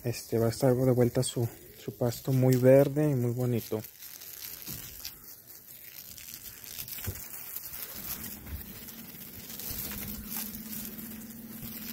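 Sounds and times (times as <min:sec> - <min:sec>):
hose spraying water on grass: 0:00.0 - 0:11.9.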